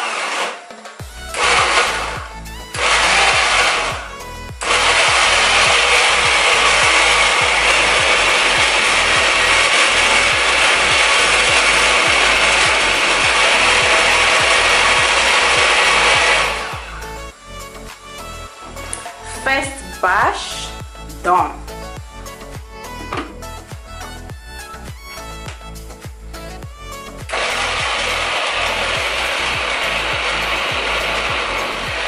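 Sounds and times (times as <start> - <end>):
blender chopping vegetables: 0.0 - 17.0, 27.2 - 32.0.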